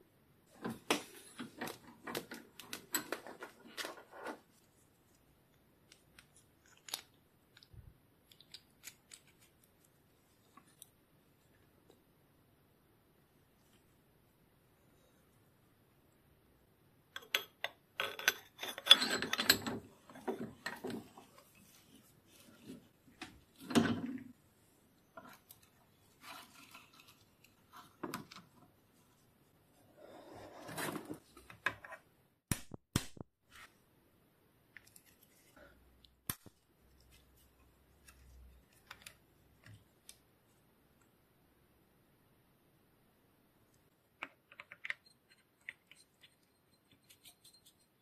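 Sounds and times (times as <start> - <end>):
tools rustling and rubbing: 0.5 - 7.2, 18.0 - 32.1, 44.5 - 48.0.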